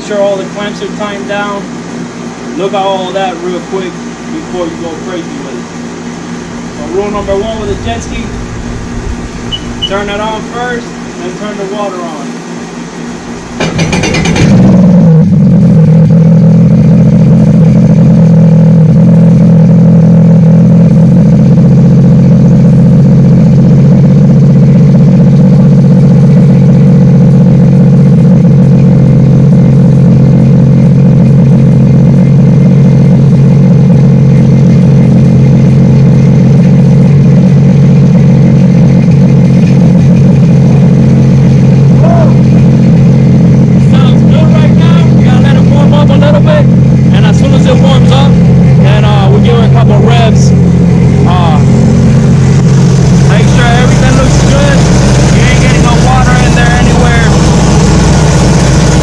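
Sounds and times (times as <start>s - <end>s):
watercraft engine idling: 0.0s - 59.0s.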